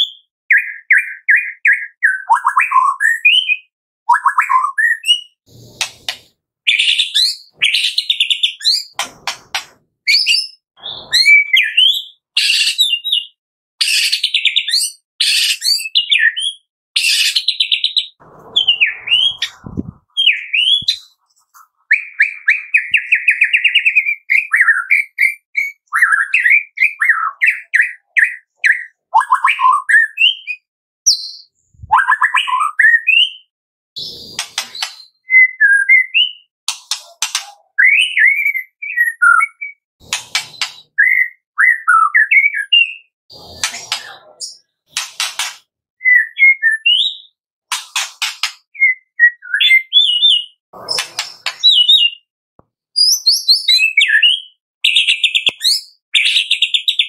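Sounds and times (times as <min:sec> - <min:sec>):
songbird singing: 0:17.5 - 0:21.2.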